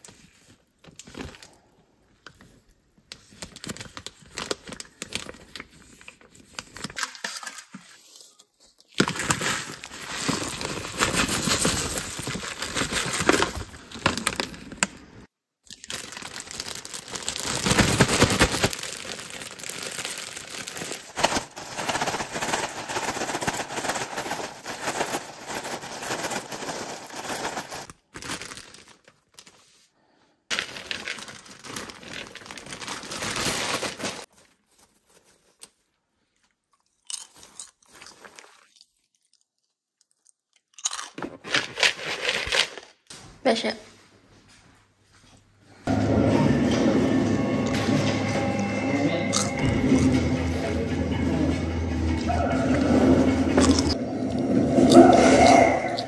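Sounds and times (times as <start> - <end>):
plastic bag crinkling: 0.0 - 7.6, 8.8 - 29.8, 30.5 - 35.9
popcorn rustling: 8.2 - 29.8, 30.5 - 36.0, 40.8 - 43.0.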